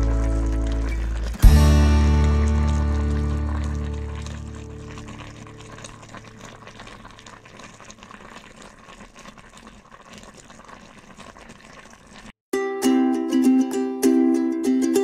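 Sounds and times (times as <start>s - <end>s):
background music: 0.0s - 4.6s
liquid simmering in a pot: 0.0s - 12.4s.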